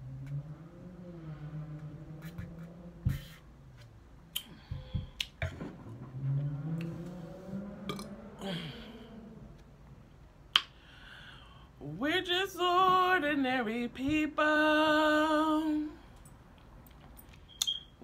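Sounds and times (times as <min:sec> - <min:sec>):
woman humming: 0:08.4 - 0:09.5.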